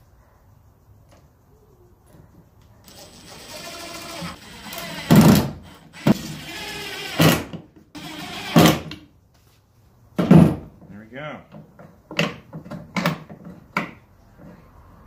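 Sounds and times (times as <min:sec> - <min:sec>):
impact driver driving screws: 0:02.9 - 0:08.9.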